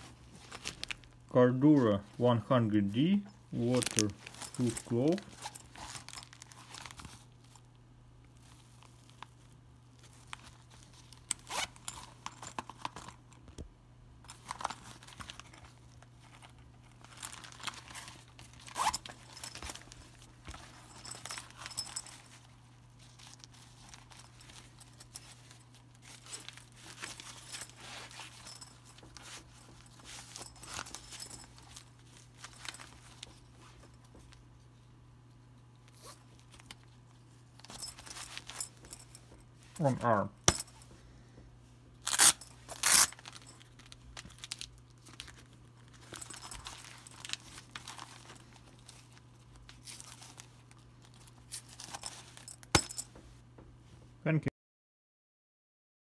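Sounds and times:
fabric and plastic rustling: 0.0s - 1.8s, 2.9s - 7.7s, 14.2s - 34.8s, 35.9s - 40.0s, 42.0s - 53.4s
zipper pulled: 11.3s - 12.5s, 17.8s - 20.0s.

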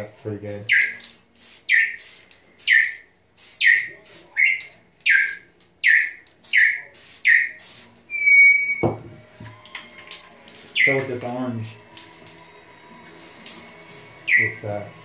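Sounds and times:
parrot squalling: 0.7s - 1.0s, 1.7s - 2.0s, 2.7s - 3.0s, 3.6s - 8.8s.

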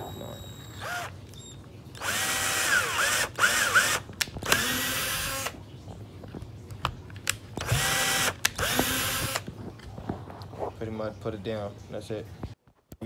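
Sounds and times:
power drill whining: 0.0s - 5.6s, 7.6s - 9.5s.

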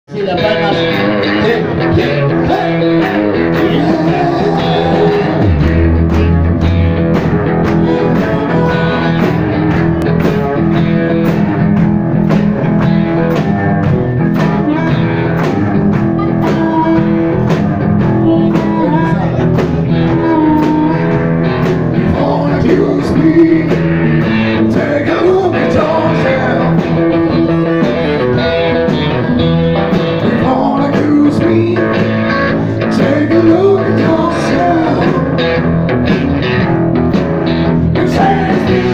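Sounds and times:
drums: 0.1s - 38.9s
electric guitar: 0.1s - 38.9s
person singing into a microphone: 0.4s - 5.6s, 7.8s - 9.2s, 16.2s - 17.4s, 18.0s - 21.3s, 22.0s - 29.3s, 30.2s - 35.4s, 37.9s - 38.9s.

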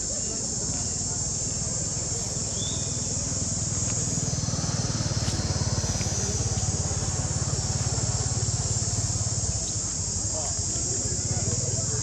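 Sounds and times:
small engine running: 1.4s - 12.0s.

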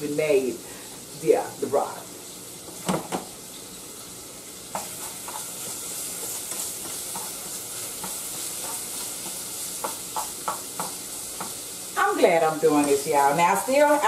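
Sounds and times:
bacon sizzling in a pan: 0.0s - 14.0s
utensil scraping and tapping pan: 4.7s - 11.6s.

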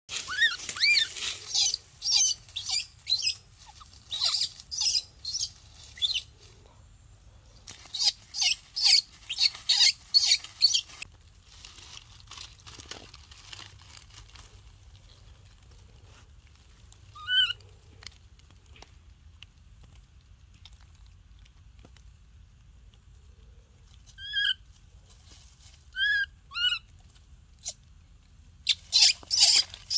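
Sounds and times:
leaves crunching underfoot: 0.1s - 6.6s, 7.5s - 18.6s.

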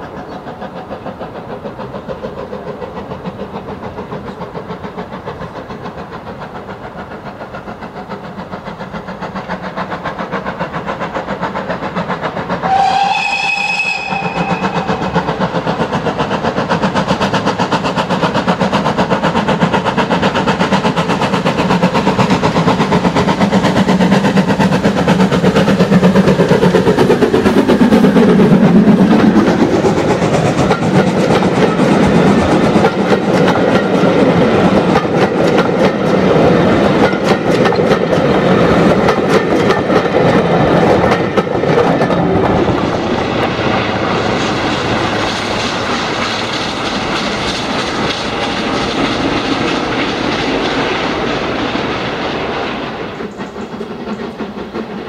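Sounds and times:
steam locomotive approaching: 0.0s - 55.0s
steam whistle blast: 12.6s - 15.2s
wheels clicking over rail joints: 14.1s - 43.5s, 44.2s - 52.1s.

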